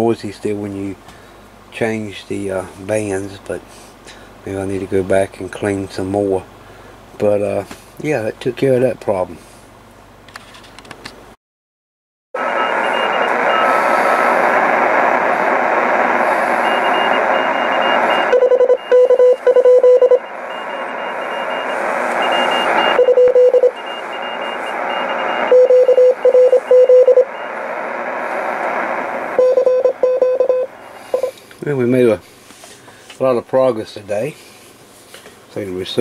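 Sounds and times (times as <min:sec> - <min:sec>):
morse code signal: 0:12.4 - 0:14.4, 0:16.4 - 0:27.7, 0:29.4 - 0:31.4
faint higher-pitched morse signal: 0:12.4 - 0:14.6, 0:16.2 - 0:27.7, 0:29.4 - 0:31.4
radio band noise hiss: 0:12.4 - 0:18.3, 0:20.2 - 0:29.7, 0:30.3 - 0:36.0.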